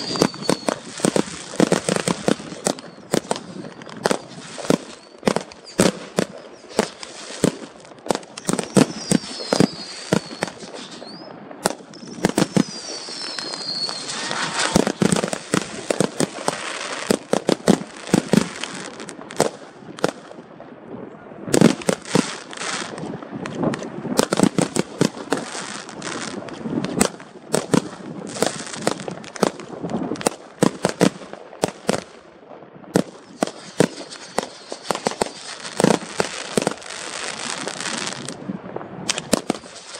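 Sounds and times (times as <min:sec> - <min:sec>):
falling firework whistles: 0:00.0 - 0:07.6, 0:08.2 - 0:17.2, 0:33.2 - 0:38.4, 0:39.1 - 0:39.9
firework bangs: 0:00.0 - 0:20.4, 0:21.5 - 0:32.2, 0:32.9 - 0:39.9
fireworks crackling: 0:00.0 - 0:20.8, 0:21.5 - 0:39.9.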